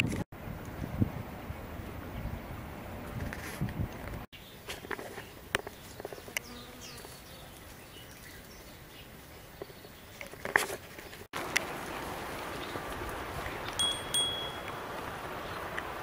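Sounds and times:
bee buzzing: 6.2s - 7.7s.

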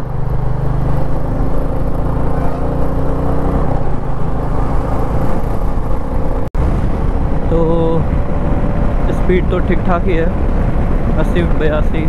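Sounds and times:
motorcycle engine running: 0.0s - 12.0s
wind rushing over microphone: 3.0s - 12.0s.

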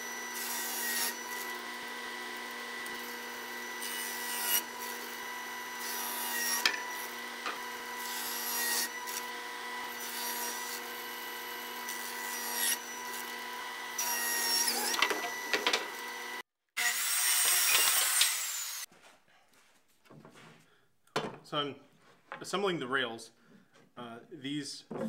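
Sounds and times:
table saw cutting wood: 0.0s - 18.9s.

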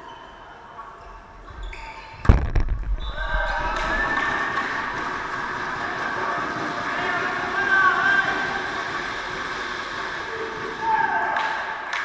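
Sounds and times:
players shouting and cheering: 2.8s - 11.9s.

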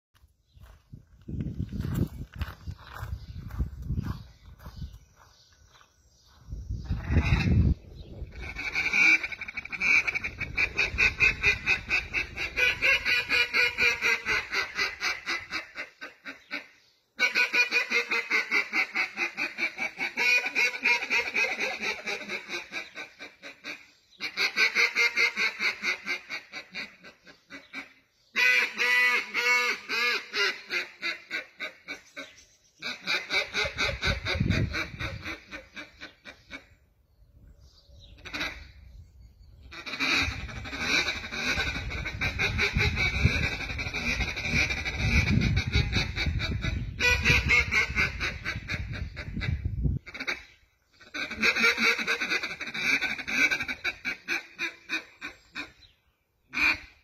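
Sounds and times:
duck call quacks: 7.0s - 7.6s, 8.3s - 32.0s, 32.8s - 36.7s, 38.2s - 38.7s, 39.7s - 55.8s, 56.5s - 57.0s.

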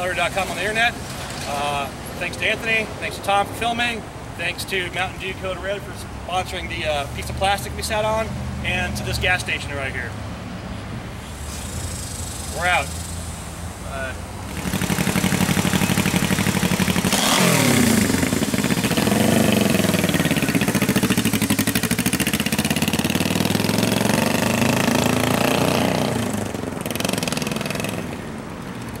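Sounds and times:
motorcycle engine pulling away: 14.5s - 29.0s.

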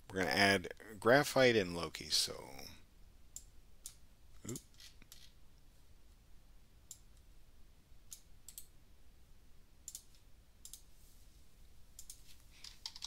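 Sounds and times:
computer mouse clicks: 8.1s - 8.7s, 9.8s - 10.9s, 12.0s - 13.0s
keyboard key presses: 12.0s - 13.0s.

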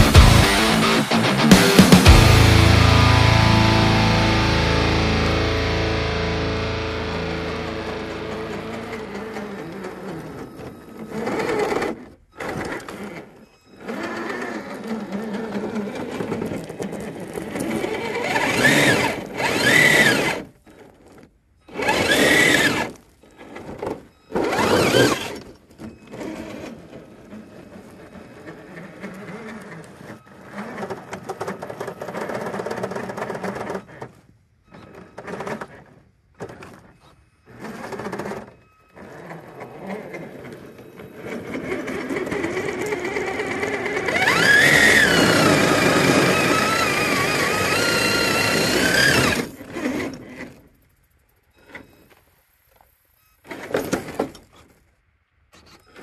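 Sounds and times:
electric motor whining: 0.0s - 13.3s, 13.9s - 20.6s, 21.8s - 23.0s, 39.6s - 50.2s.

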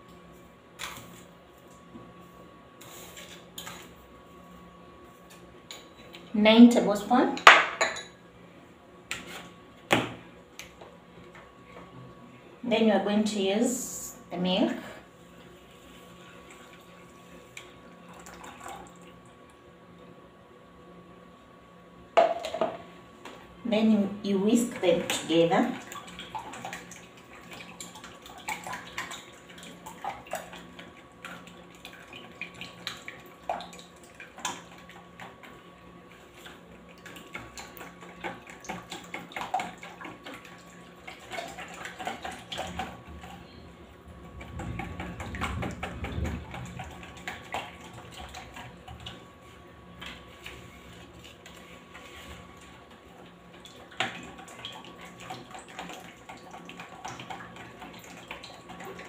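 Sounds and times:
cake batter being whisked: 44.5s - 53.2s.

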